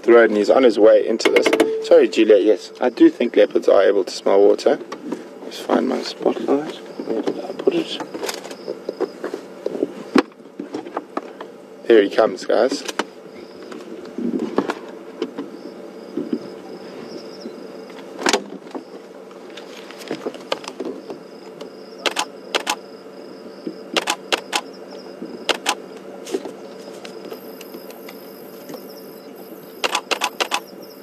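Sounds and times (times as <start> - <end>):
high insect trill: 0.0 - 4.8, 5.4 - 10.4, 11.3 - 31.0
low hum: 0.0 - 5.6
sharp clicks and knocks: 1.2 - 1.8.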